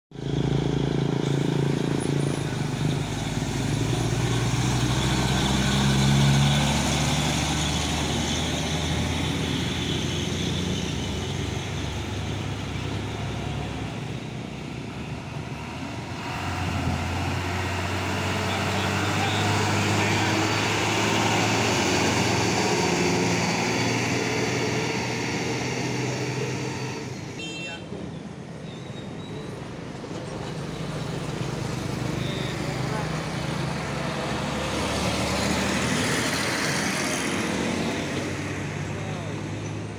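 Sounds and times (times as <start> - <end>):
diesel trucks passing: 0.1 - 39.9
motorcycles passing: 0.2 - 27.6, 30.4 - 39.9.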